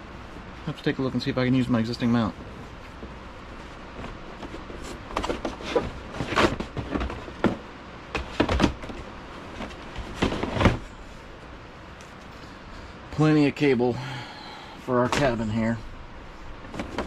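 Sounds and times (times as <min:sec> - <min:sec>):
cardboard scraping and knocking: 0:03.9 - 0:10.9.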